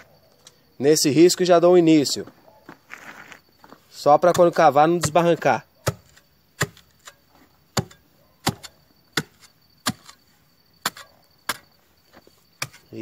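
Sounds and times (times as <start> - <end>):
spade chopping into soil: 4.2 - 11.8, 12.6 - 13.0.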